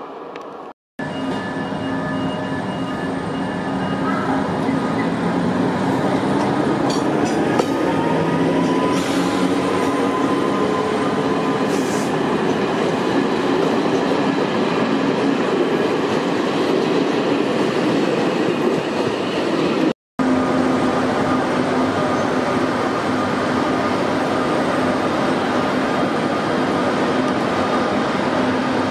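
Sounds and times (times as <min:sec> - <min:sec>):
electric locomotive hum: 0:18.1 - 0:28.9.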